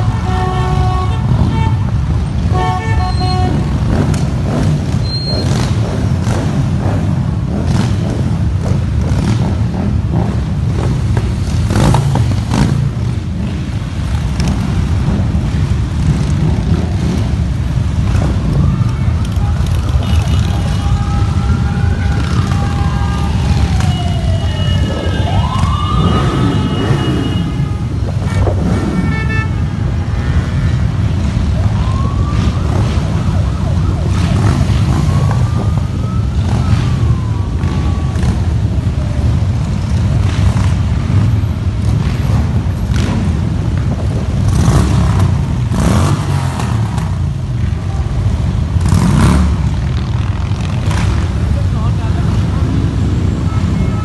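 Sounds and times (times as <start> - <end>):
motorcycle engines revving: 0.0 - 54.0
siren wailing: 18.3 - 28.2, 31.3 - 39.5, 53.3 - 54.0
motorcycles rumbling past: 30.2 - 54.0.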